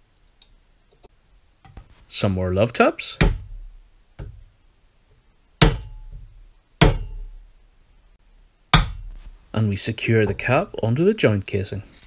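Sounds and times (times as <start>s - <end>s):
mallet knocking on wooden block: 3.2s - 3.6s, 5.6s - 7.3s.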